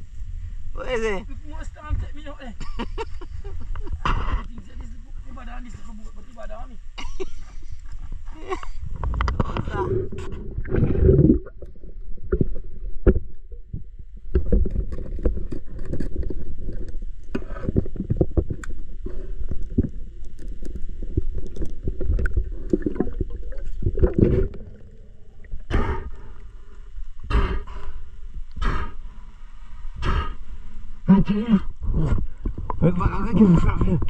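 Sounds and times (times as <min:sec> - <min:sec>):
low rumbling: 0:06.9 - 0:34.0
water splashing and sloshing: 0:07.9 - 0:27.3.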